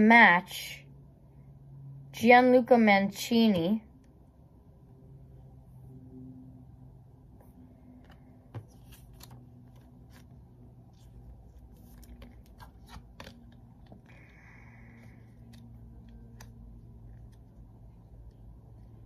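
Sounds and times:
steady low hum: 0:00.0 - 0:19.0
cards shuffling: 0:08.0 - 0:18.5.

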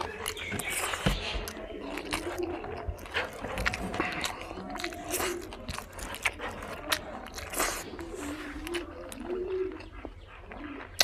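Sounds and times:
wet chewing and mouth smacks: 0:00.0 - 0:11.0.

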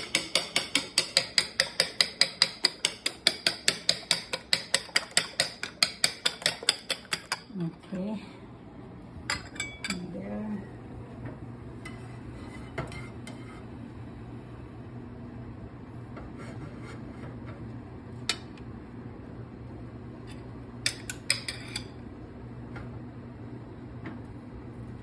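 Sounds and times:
steady low hum: 0:00.0 - 0:25.0
dishes and utensils clinking: 0:09.3 - 0:10.1, 0:20.3 - 0:22.0.

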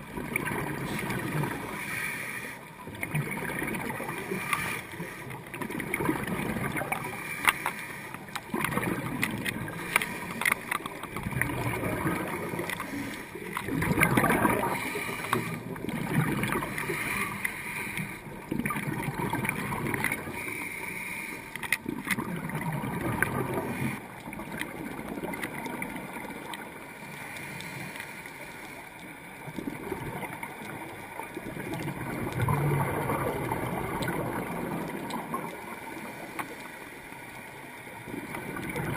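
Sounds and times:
bubbles gurgling underwater: 0:00.0 - 0:01.8, 0:02.8 - 0:07.2, 0:08.3 - 0:17.0, 0:18.2 - 0:20.3, 0:21.8 - 0:26.8, 0:29.4 - 0:35.8, 0:38.1 - 0:38.9
scuba breathing through regulator: 0:00.8 - 0:02.7, 0:03.9 - 0:05.5, 0:06.9 - 0:08.3, 0:09.7 - 0:10.8, 0:12.6 - 0:13.4, 0:14.4 - 0:15.8, 0:16.5 - 0:18.3, 0:20.2 - 0:21.6.

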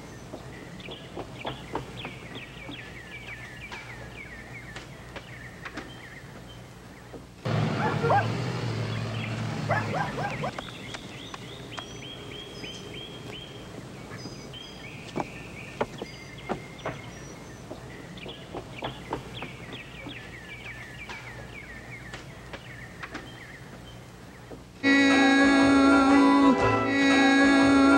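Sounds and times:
birds chirping: 0:00.0 - 0:27.9
steady outdoor hiss: 0:00.0 - 0:27.9
music with sustained chord: 0:24.8 - 0:27.9.

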